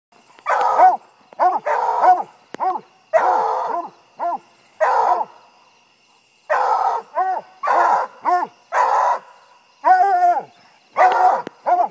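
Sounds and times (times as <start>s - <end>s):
dog barking: 0.5s - 5.3s, 6.5s - 11.9s.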